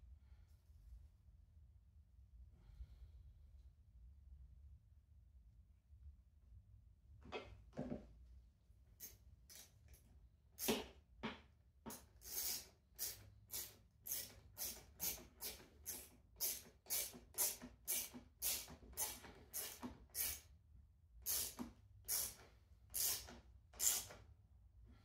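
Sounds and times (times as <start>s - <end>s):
hand tool rasping: 12.2s - 20.4s, 23.0s - 24.1s.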